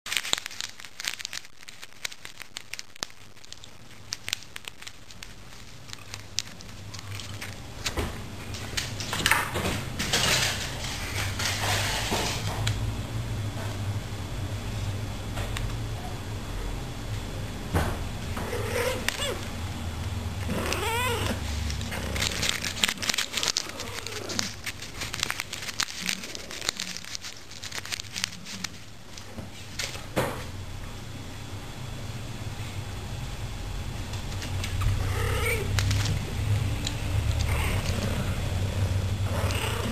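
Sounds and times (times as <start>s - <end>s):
rapid crackling: 0.1s - 7.9s, 20.4s - 29.0s
candy wrapper crinkling: 0.1s - 9.1s, 20.4s - 30.0s, 34.2s - 38.1s.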